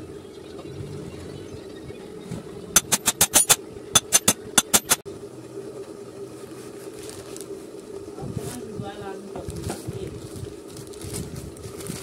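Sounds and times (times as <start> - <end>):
steady hum: 2.0 - 6.4
metal parts clicking together: 2.8 - 5.0.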